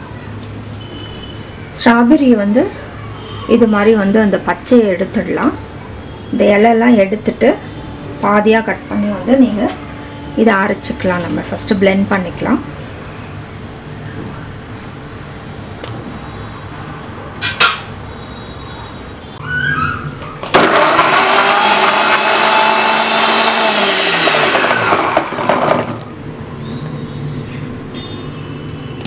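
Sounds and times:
electric blender motor: 20.6 - 26.0.

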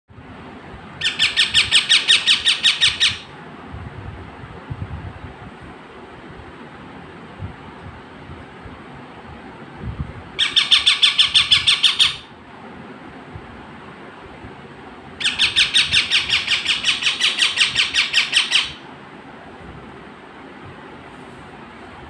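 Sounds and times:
parrot squawking: 1.0 - 3.3, 10.4 - 12.3, 15.2 - 18.8.

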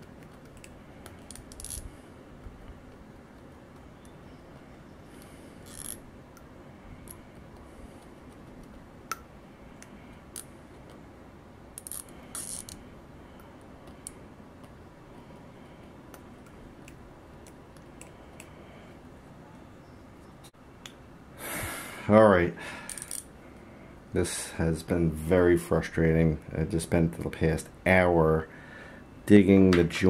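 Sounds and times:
faint steady hiss: 0.0 - 30.0.

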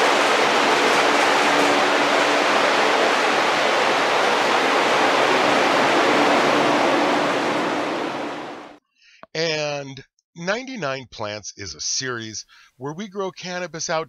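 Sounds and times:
ventilation fans blowing: 0.0 - 8.8.

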